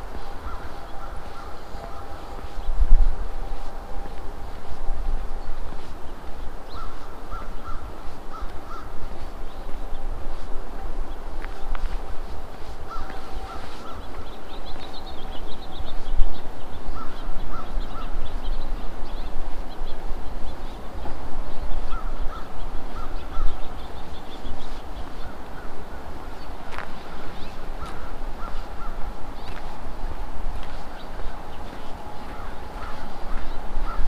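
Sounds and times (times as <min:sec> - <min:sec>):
crows cawing: 0:00.0 - 0:02.5, 0:06.7 - 0:09.3, 0:12.8 - 0:14.4, 0:16.9 - 0:18.2, 0:21.9 - 0:23.6, 0:25.2 - 0:29.7, 0:31.1 - 0:34.0
steady low rumble: 0:00.0 - 0:34.0.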